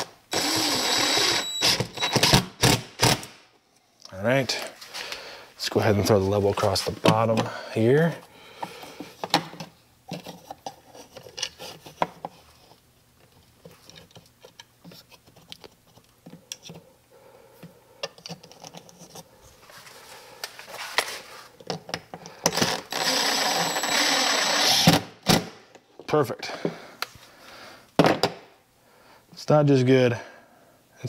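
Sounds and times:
cordless drill driving screw: 0.0s - 3.3s, 22.5s - 25.0s.

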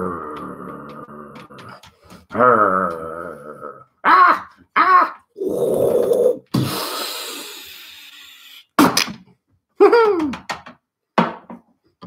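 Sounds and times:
man making growling noises: 0.0s - 7.6s
short falling vocal noises: 4.8s - 8.5s.

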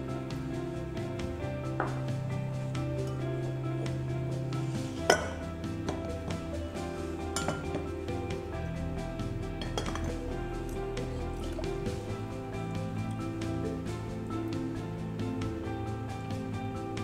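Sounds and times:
background music: 0.0s - 17.0s
tableware clinking: 5.1s - 6.4s, 7.4s - 7.9s, 9.6s - 10.2s.

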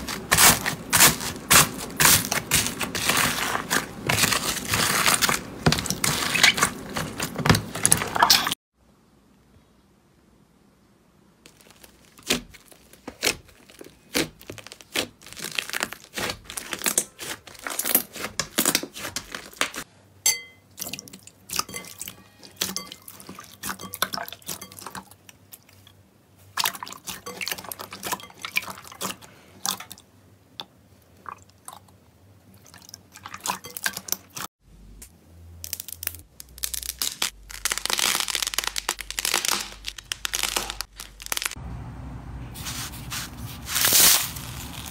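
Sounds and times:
slime popping and crackling: 11.5s - 19.8s, 35.6s - 41.6s.

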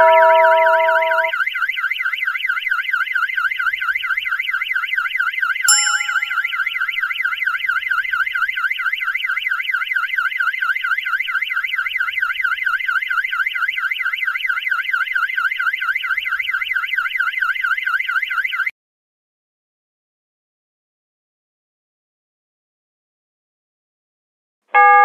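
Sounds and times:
alarm siren warbling: 0.0s - 1.4s.

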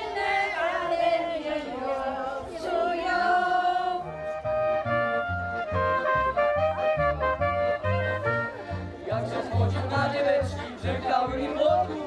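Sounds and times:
group singing unaccompanied: 0.0s - 4.4s, 9.0s - 12.0s
folk band playing: 2.6s - 12.0s.

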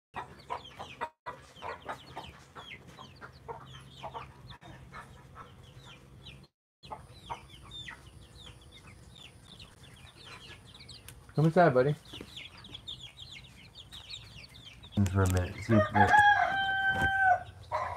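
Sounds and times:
chicks peeping: 0.2s - 17.9s.

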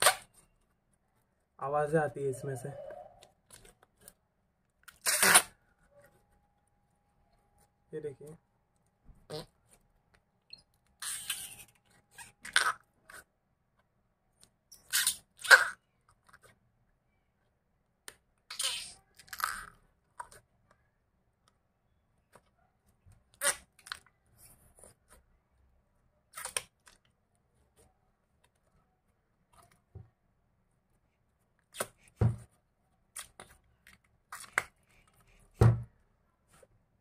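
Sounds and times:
slime squishing: 31.6s - 35.6s.

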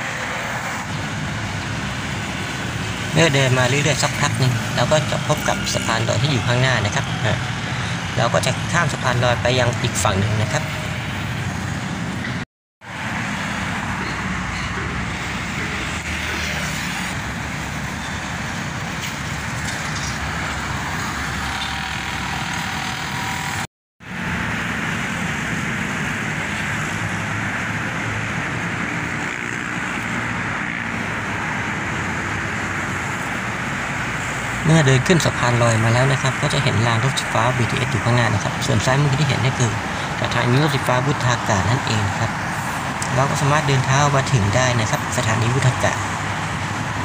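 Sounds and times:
road traffic passing: 0.0s - 47.0s.

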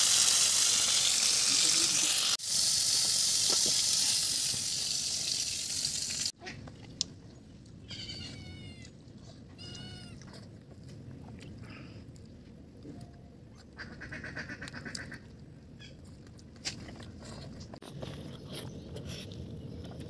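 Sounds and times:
fish frying in hot oil: 0.0s - 6.4s
animal high wavering cries: 7.9s - 8.9s.

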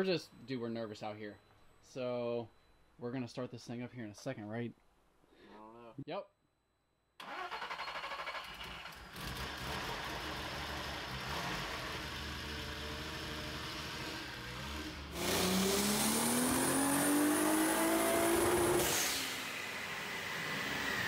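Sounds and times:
engine starter cranking: 7.2s - 10.5s
car engine running and revving: 9.2s - 21.0s.

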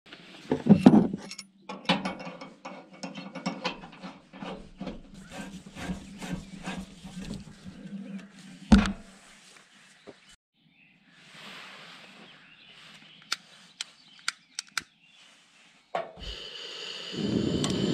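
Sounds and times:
metal clicks and scrapes: 0.8s - 7.8s.

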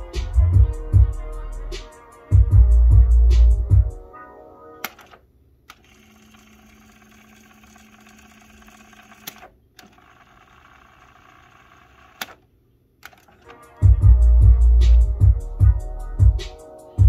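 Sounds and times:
cassette tape winding whir: 4.8s - 12.4s, 13.0s - 13.9s.

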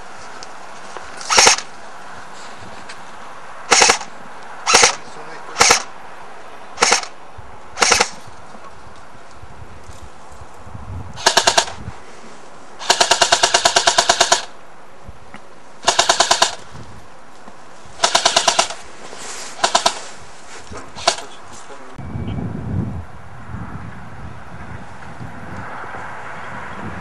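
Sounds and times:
airsoft guns firing bursts: 1.3s - 1.7s, 3.7s - 4.1s, 4.7s - 5.0s, 5.6s - 5.9s, 6.8s - 7.2s, 7.8s - 8.2s, 11.2s - 11.8s, 12.8s - 14.6s, 15.8s - 16.6s, 18.0s - 18.8s, 19.6s - 20.1s, 21.0s - 21.4s.

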